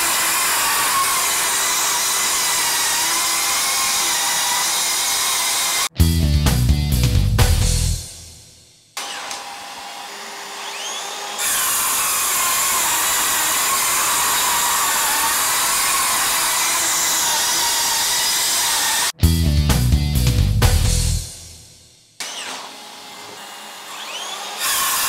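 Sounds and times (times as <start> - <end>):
circular saw cutting boards: 0.0 - 6.0, 8.9 - 19.2, 22.2 - 25.0
music: 5.9 - 9.0, 19.2 - 22.2.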